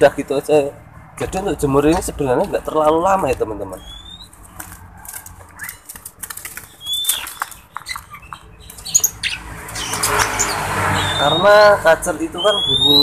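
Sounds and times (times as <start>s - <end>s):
high rising bird chirps: 2.8s - 4.4s, 6.6s - 13.0s.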